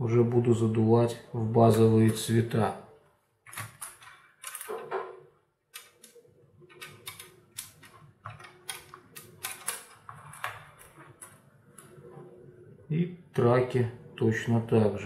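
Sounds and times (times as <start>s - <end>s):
plastic parts clicking and tapping: 3.5s - 12.0s.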